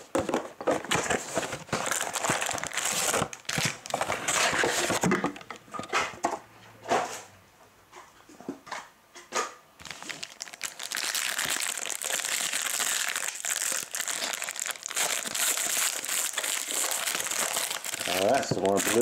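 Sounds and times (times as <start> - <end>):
foil wrapper crinkling: 1.2 - 5.0, 9.8 - 19.0.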